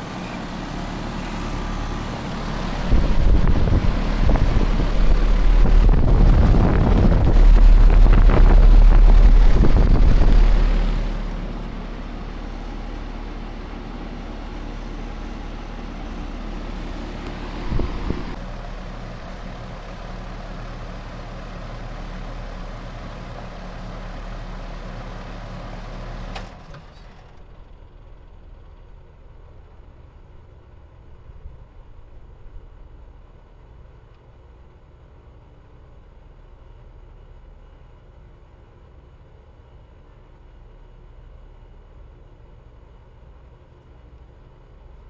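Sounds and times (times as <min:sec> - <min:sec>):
heat pump humming: 0:00.0 - 0:29.8
wind rushing on microphone: 0:02.8 - 0:11.1, 0:17.6 - 0:18.4.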